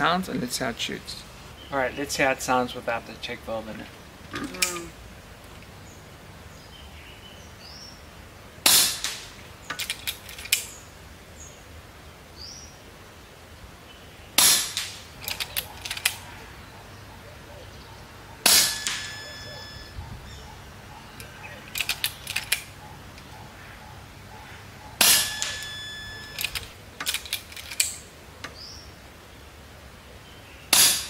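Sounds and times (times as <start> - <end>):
air rifle shots: 8.6 - 10.5, 14.4 - 16.2, 18.4 - 19.2, 25.0 - 28.0, 30.7 - 31.0
rifle action clicks: 9.7 - 10.7, 14.7 - 16.2, 21.2 - 23.3, 25.0 - 28.6
thin high valve squeak: 18.7 - 20.1, 25.0 - 26.6.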